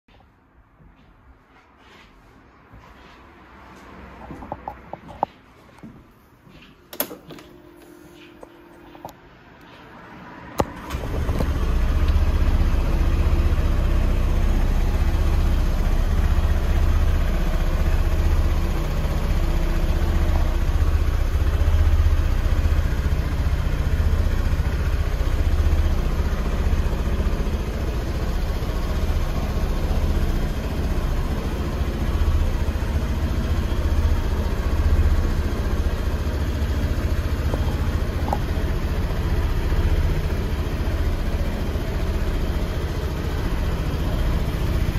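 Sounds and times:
scooter engine starting and idling: 6.9 - 9.7, 10.4 - 44.9.

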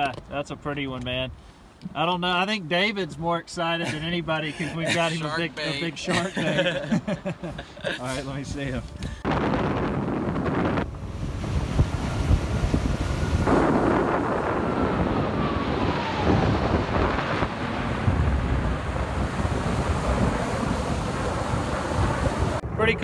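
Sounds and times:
jets passing overhead: 8.0 - 23.0
wind noise on microphone: 8.2 - 23.0.

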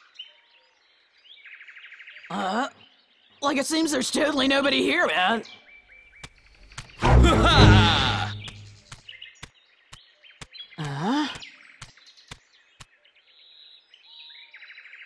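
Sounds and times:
short wordless voice sound: 7.0 - 8.7
cartoon footstep clicks: 7.0 - 8.8.

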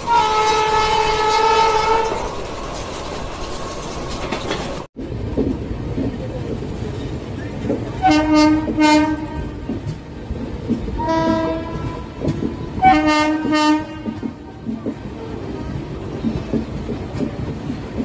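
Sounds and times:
train horn blasts: 0.0 - 2.3, 8.0 - 9.8, 11.0 - 12.2, 12.8 - 14.4
moving train rumble and wheel clicks: 0.0 - 18.0.

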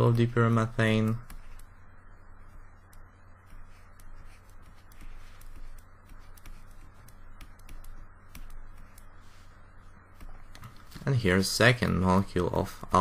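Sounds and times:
low electrical hum: 0.0 - 13.0
stylus tapping on drawing tablet: 2.8 - 9.1.

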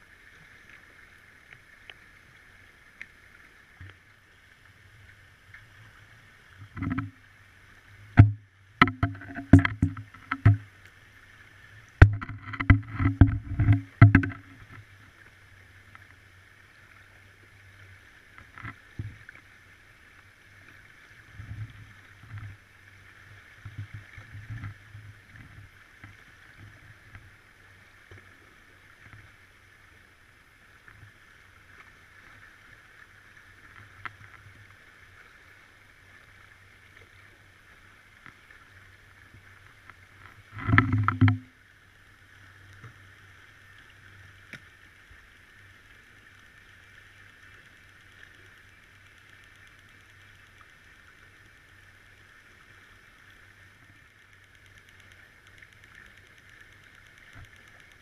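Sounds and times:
steady underwater hum: 0.0 - 58.0
underwater knocks and clicks: 6.5 - 7.3, 8.1 - 11.0, 11.8 - 14.9, 18.4 - 19.4, 21.4 - 22.6, 23.5 - 27.2, 39.8 - 41.6, 54.0 - 58.0.

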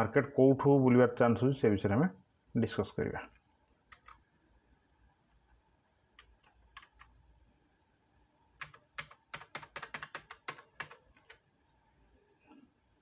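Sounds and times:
keyboard keys clicking: 8.6 - 11.4.

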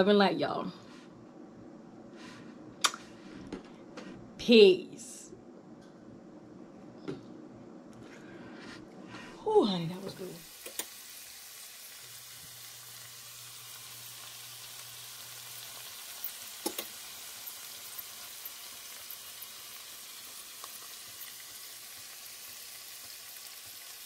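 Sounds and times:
food sizzling with pops: 9.9 - 24.0.

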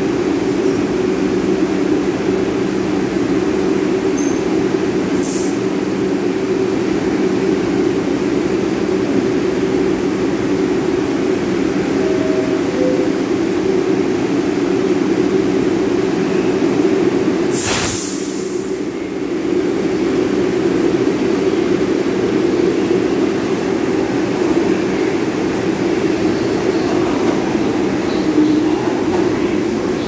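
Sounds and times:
subway train rolling: 0.0 - 30.0
air hiss: 17.5 - 18.9.

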